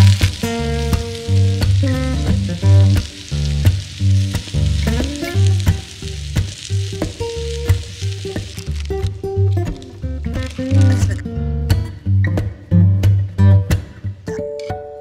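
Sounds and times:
vegetables sizzling in a frying pan: 0.0s - 11.2s.

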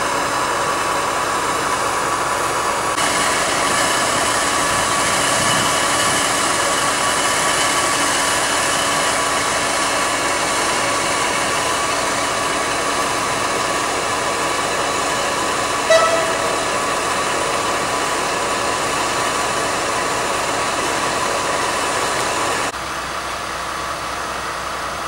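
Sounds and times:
train wheels rolling on rails: 0.0s - 22.8s
brief pitched note: 15.9s - 16.8s.

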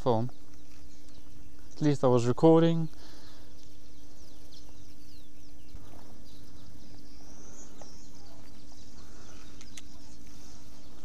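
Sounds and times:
birds chirping: 0.0s - 11.0s
low outdoor rumble: 0.0s - 11.0s
sharp clicks: 9.5s - 10.0s.

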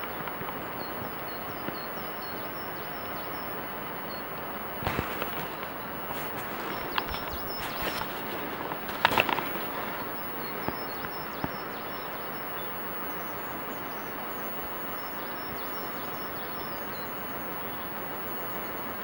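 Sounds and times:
outdoor background hiss: 0.0s - 19.0s
small birds chirping: 0.0s - 19.0s.

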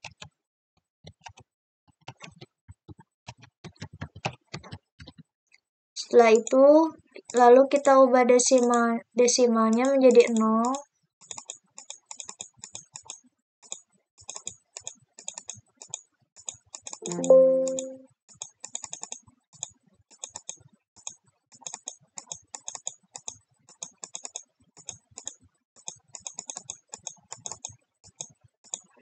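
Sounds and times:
computer keyboard typing: 1.1s - 1.4s, 2.0s - 5.2s, 9.7s - 28.9s
short electronic chime: 17.1s - 18.0s.

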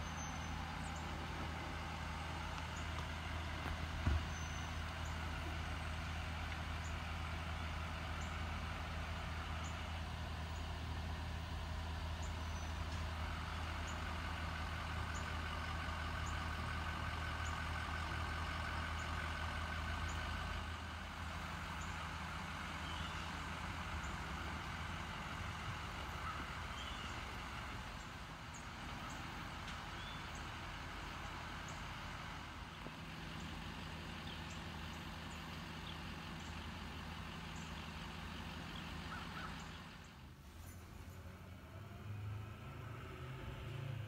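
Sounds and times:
vehicle engines rumbling: 0.0s - 44.0s.

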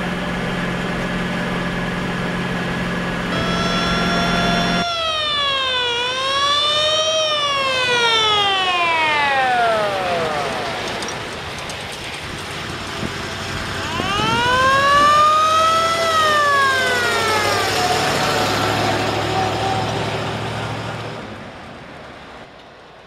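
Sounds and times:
truck engine running: 0.0s - 22.4s
fire engine siren wailing: 3.3s - 11.5s, 12.7s - 21.2s.

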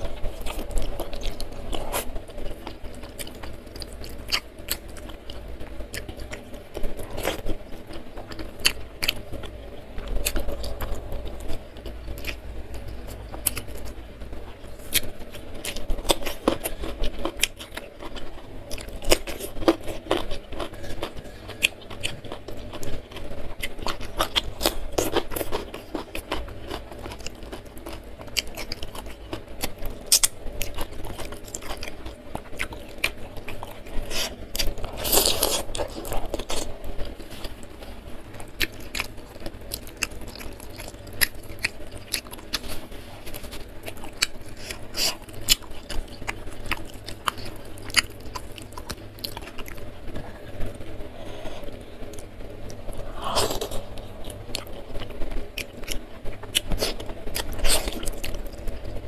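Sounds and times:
person chewing food: 0.0s - 58.9s
mouth clicks and crunches: 51.2s - 58.9s.

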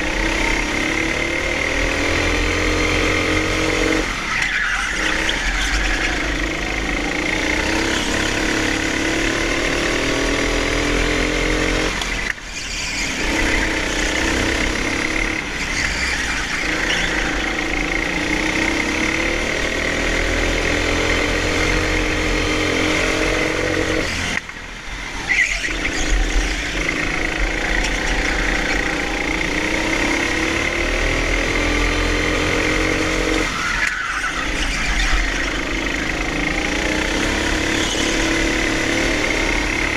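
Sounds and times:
go-kart engine revving: 0.0s - 39.9s.

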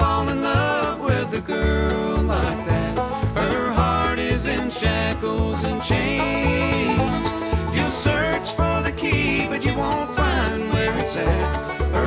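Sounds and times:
instrumental country music: 0.0s - 12.0s.

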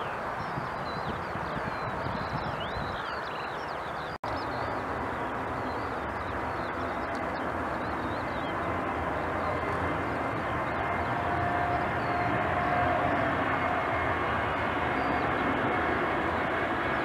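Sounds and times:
distant jet engines rumbling: 0.0s - 17.0s
faint jet engine whine: 0.0s - 17.0s.

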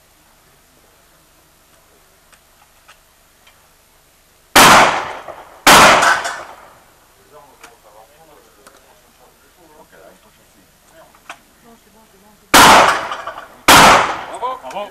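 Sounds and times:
loud gunshots: 4.6s - 6.8s, 12.5s - 14.6s.

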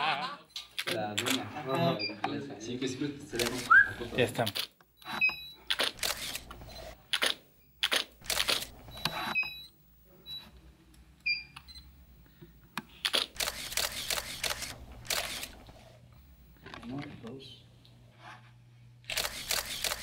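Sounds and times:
camera shutter clicks: 3.4s - 3.8s, 5.7s - 6.5s, 7.1s - 8.7s, 13.0s - 15.6s, 19.1s - 20.0s.

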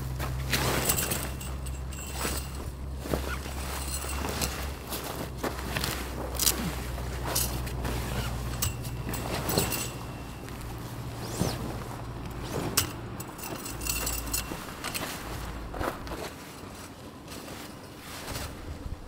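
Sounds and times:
footsteps: 0.0s - 18.8s
steady low hum: 0.0s - 19.0s
light knocks and metallic clinks: 0.3s - 5.0s, 7.2s - 11.4s, 12.2s - 15.8s.

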